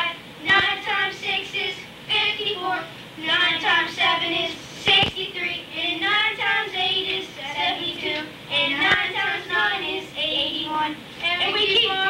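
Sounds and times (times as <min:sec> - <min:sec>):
children singing: 0:00.0 - 0:12.0.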